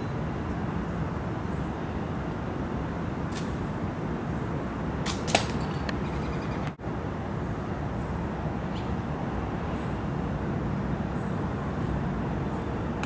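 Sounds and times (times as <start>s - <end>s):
flying disc hitting metal basket: 5.0s - 5.9s.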